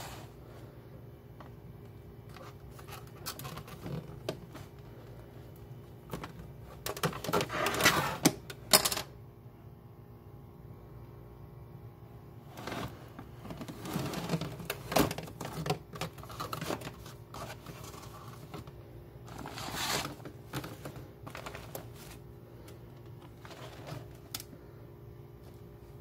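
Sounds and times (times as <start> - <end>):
faint steady hum: 0.0 - 26.0
plastic parts clicking and knocking: 6.1 - 9.1, 13.5 - 18.7.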